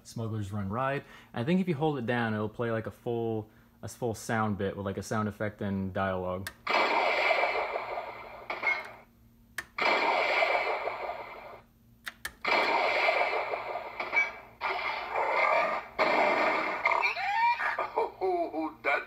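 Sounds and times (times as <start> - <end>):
electronic blast sound effect: 6.7 - 9.0, 9.8 - 11.6, 12.4 - 17.3.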